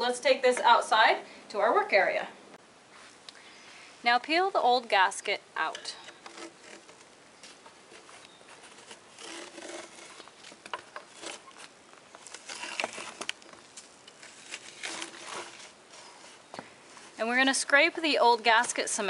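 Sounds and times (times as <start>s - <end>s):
rope gasket tearing and scraping: 6.0s - 17.3s.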